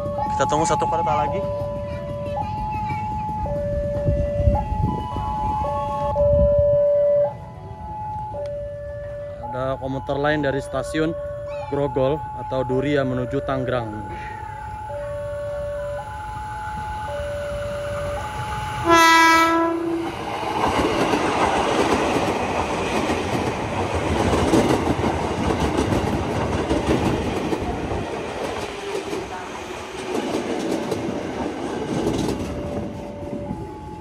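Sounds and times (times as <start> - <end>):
two-tone crossing alarm: 0.0 - 20.9, 32.0 - 34.0
train horn blast: 17.9 - 20.2
train wheels clacking on rails: 19.9 - 33.5.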